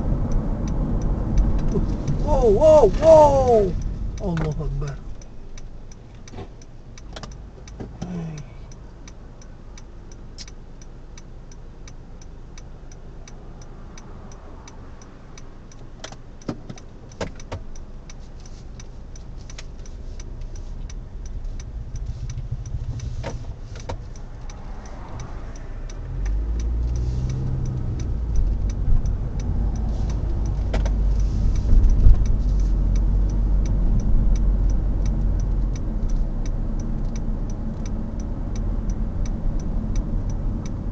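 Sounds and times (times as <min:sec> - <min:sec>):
car engine idling: 0:00.0 - 0:38.2
engine and road rumble: 0:00.0 - 0:40.9
indicator relay ticking: 0:00.0 - 0:40.9.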